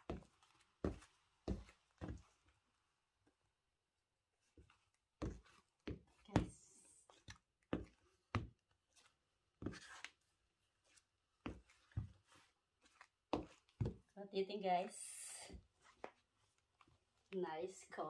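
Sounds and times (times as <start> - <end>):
heels knocking on hard floor: 5.2 - 6.6.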